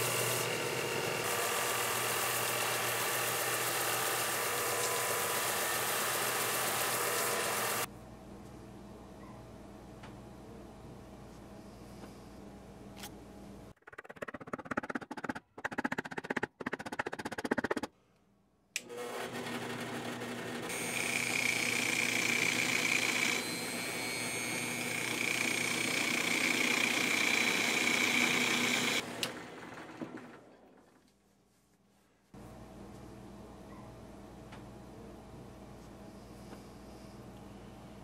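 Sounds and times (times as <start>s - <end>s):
drill press motor running: 0.0s - 7.9s, 18.8s - 30.6s.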